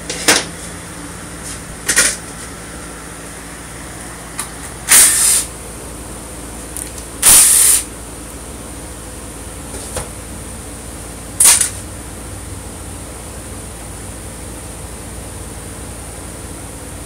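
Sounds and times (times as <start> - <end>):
impact driver bursts: 4.9 - 5.5, 7.2 - 7.9.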